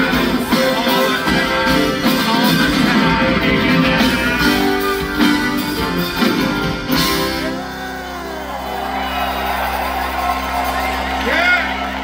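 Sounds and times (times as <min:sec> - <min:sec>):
live band playing rock: 0:00.0 - 0:12.0.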